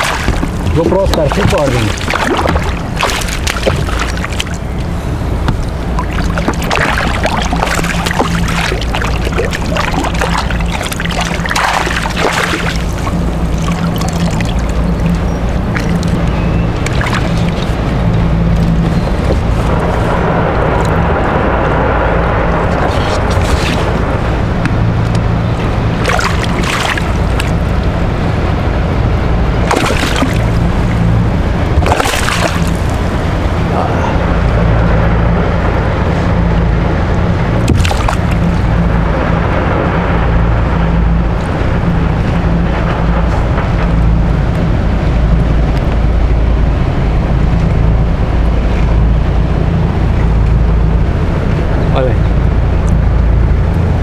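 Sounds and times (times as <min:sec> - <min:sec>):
fish splashing at water surface: 0:00.0 - 0:04.7, 0:05.5 - 0:17.8, 0:26.0 - 0:27.8, 0:29.6 - 0:31.1, 0:31.8 - 0:33.2, 0:37.6 - 0:38.7
steady low rumble: 0:00.0 - 0:54.0.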